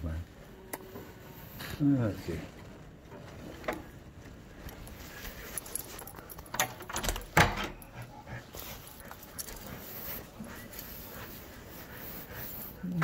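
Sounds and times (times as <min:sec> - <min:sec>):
keys jangling: 0:04.6 - 0:09.8
key turning in door lock: 0:05.9 - 0:07.9.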